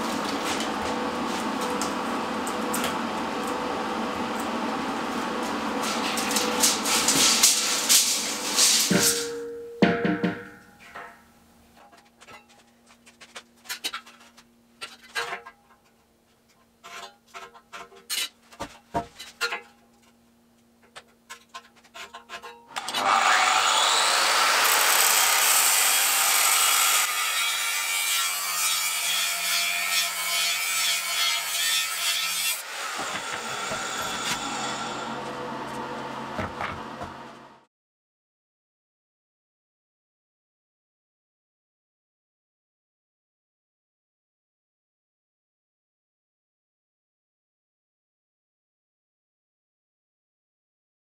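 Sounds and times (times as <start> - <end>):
angle grinder cutting steel tube: 22.7 - 36.2.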